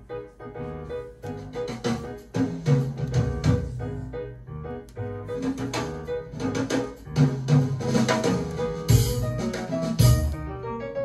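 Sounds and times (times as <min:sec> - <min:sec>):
strong drum hit: 0:07.2 - 0:09.4.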